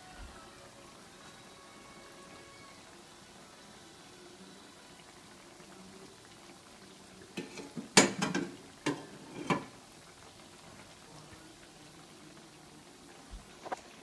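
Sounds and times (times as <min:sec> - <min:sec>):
food sizzling in hot oil: 0:00.0 - 0:14.0
utensil clanking against wok: 0:07.4 - 0:09.7.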